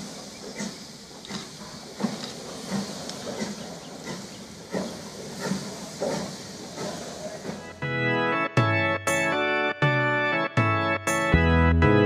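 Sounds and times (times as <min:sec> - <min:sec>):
steam hissing: 0:00.0 - 0:07.8
steam locomotive chuffing: 0:00.0 - 0:08.5.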